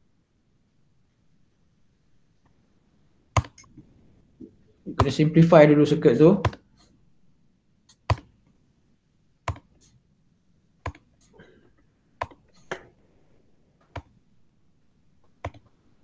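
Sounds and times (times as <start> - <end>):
sharp computer clicks: 3.4 - 3.8, 9.5 - 9.8.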